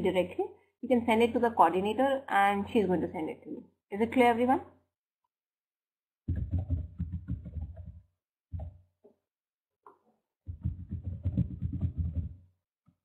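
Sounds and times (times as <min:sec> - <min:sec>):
tapping and rustling on microphone: 0:06.3 - 0:08.8, 0:09.9 - 0:12.5.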